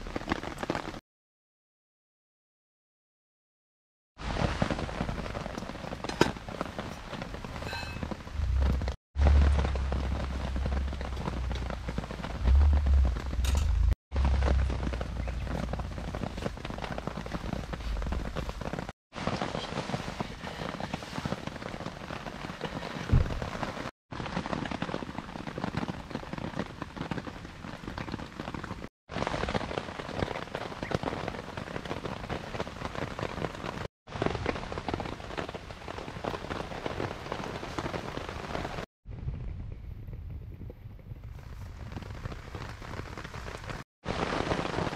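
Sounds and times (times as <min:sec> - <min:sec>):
rain on a tarp: 0:00.0 - 0:01.0, 0:04.2 - 0:38.9, 0:41.2 - 0:44.9
low thump: 0:23.1 - 0:23.4.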